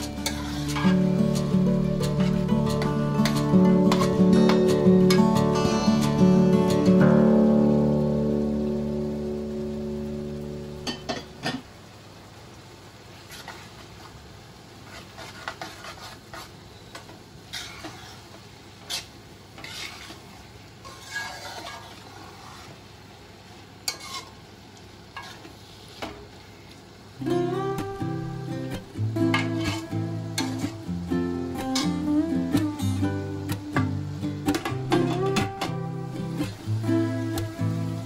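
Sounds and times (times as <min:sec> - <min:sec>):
metal spoon scraping a pan: 0:00.0 - 0:06.2, 0:13.3 - 0:13.8, 0:14.8 - 0:22.8, 0:23.8 - 0:24.4, 0:25.1 - 0:26.1, 0:29.3 - 0:30.8, 0:31.6 - 0:32.1
faint sizzle of frying: 0:00.0 - 0:38.0.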